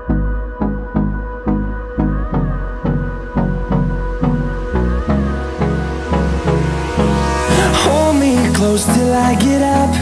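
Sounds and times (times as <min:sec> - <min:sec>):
instrumental pop music: 0:00.0 - 0:10.0.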